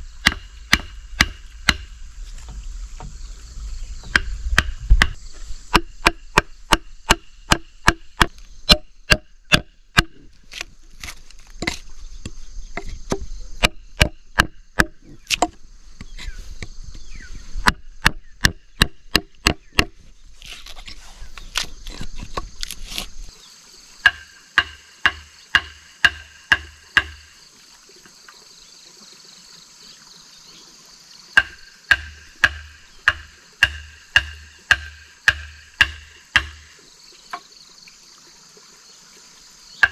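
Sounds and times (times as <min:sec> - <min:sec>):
steady high hiss: 0:00.0 - 0:21.8, 0:22.4 - 0:39.9
blade chopping wooden log: 0:00.2 - 0:03.1, 0:04.0 - 0:11.9, 0:12.8 - 0:15.6, 0:17.6 - 0:20.8, 0:24.0 - 0:27.4, 0:31.4 - 0:36.8.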